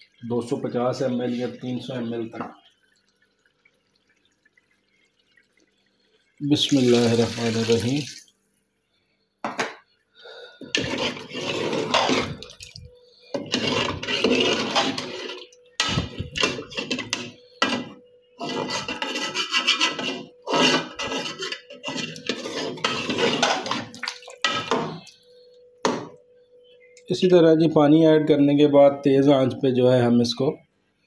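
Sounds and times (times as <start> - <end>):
ladle scraping and clinking pot: 10.6 - 25.0.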